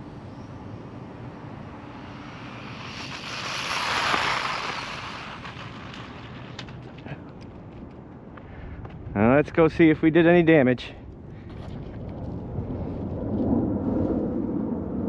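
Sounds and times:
rc truck motor and tyres speeding past: 0.3 - 7.5.

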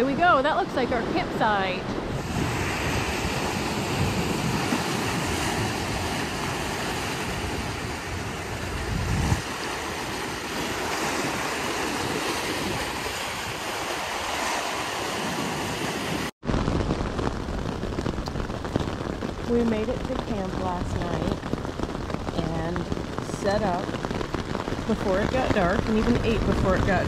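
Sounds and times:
waves splashing on rocks: 0.0 - 16.3
wind buffeting microphone: 0.0 - 27.0
rain drumming on tent: 2.2 - 27.0.

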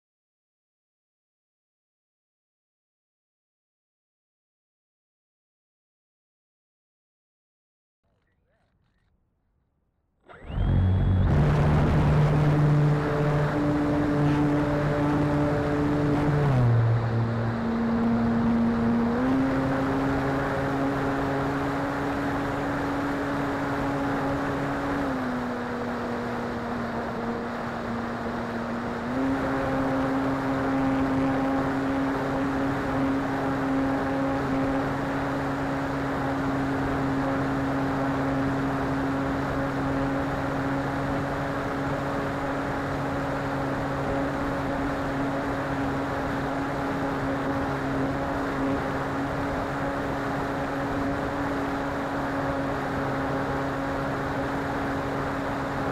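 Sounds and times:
model airplane motor and propeller: 10.2 - 12.4.

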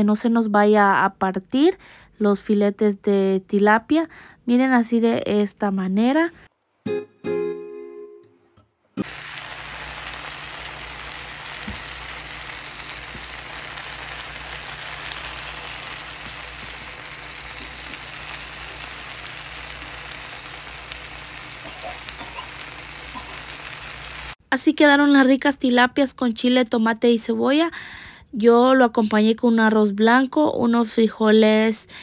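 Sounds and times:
fish sizzling in a skillet: 9.0 - 24.4.

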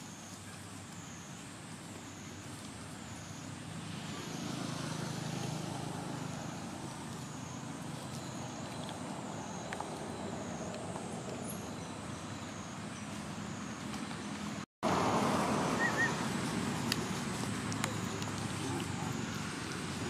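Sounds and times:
low engine rumble: 5.4 - 20.0.

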